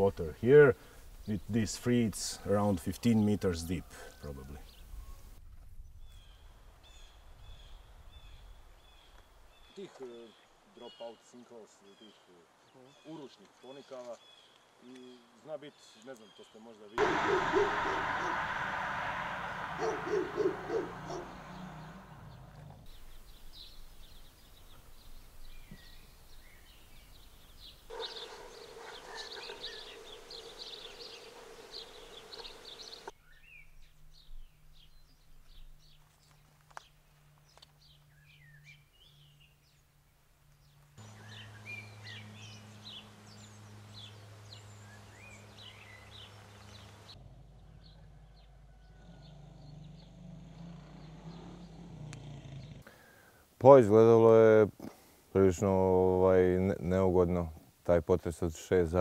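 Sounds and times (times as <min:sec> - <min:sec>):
faint outdoor background noise: 0:00.0 - 0:59.0
small birds chirping: 0:19.8 - 0:39.9, 0:40.6 - 0:53.2.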